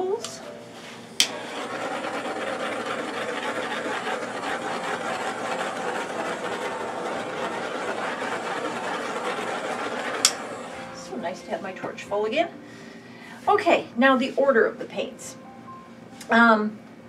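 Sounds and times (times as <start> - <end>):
torch flame hissing: 1.2 - 11.0.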